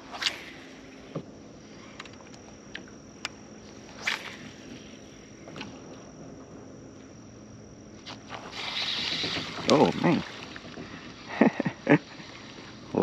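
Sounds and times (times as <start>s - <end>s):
high-pitched whine: 0.0s - 13.0s
fishing rod and reel clicks: 1.8s - 4.5s.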